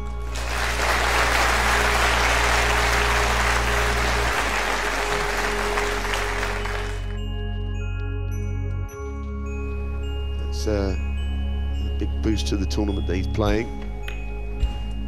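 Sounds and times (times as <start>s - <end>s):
background music: 0.0s - 15.0s
audience applauding: 0.2s - 7.2s.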